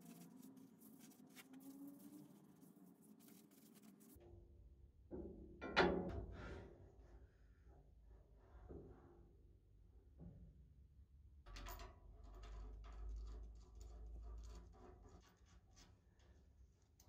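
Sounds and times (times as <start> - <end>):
small metal clicks and scrapes: 11.6 - 16.4.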